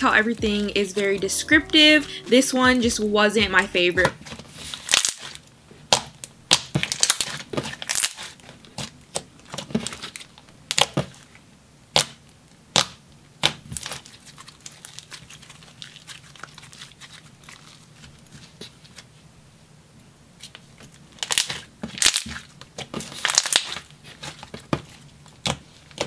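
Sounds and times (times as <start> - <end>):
slime soft crackling: 13.8 - 19.1.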